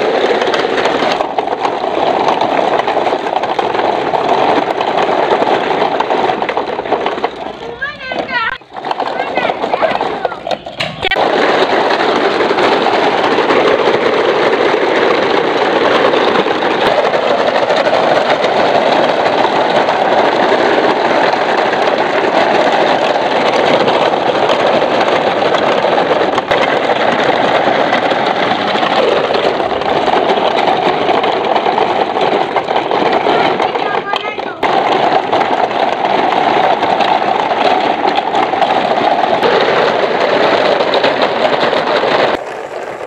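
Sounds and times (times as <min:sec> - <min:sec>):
toy trucks rattling over gravel: 0:00.0 - 0:43.0.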